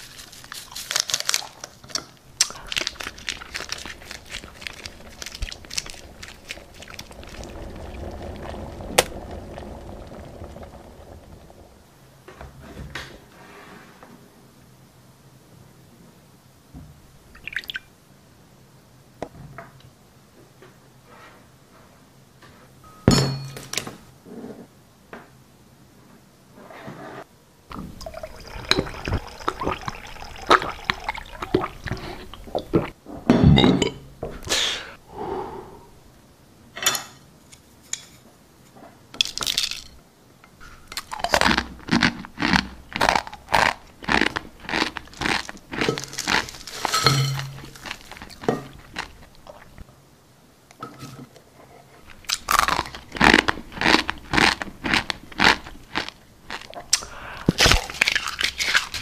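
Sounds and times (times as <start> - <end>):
dry noodles crunching: 0.0 - 11.6, 41.0 - 49.8, 52.1 - 59.0
water pouring from kettle: 2.5 - 12.0, 27.7 - 32.9.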